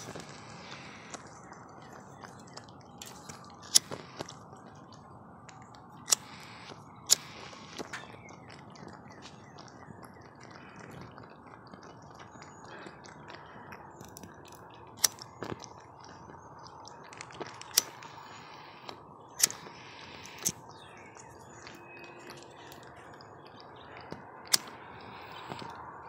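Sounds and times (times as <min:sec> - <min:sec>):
faint background noise: 0:00.0 - 0:26.0
lighter clicks: 0:06.0 - 0:07.9, 0:17.6 - 0:20.6, 0:24.5 - 0:25.6.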